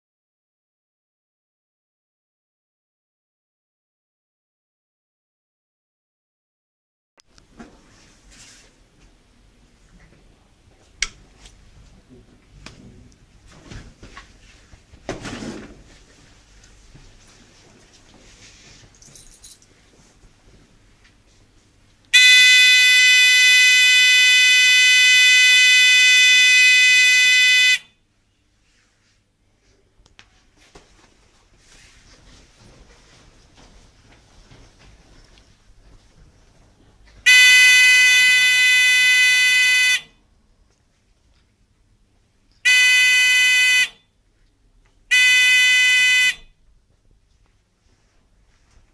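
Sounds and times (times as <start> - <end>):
electronic buzzer alarm tone: 22.2 - 27.9, 37.3 - 40.1, 42.6 - 44.0, 45.1 - 46.5.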